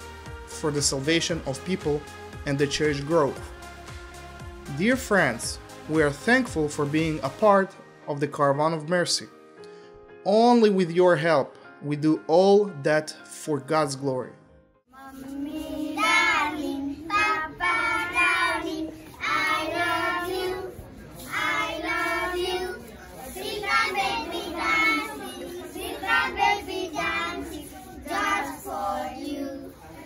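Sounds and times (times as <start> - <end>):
children singing together: 15.0 - 30.0.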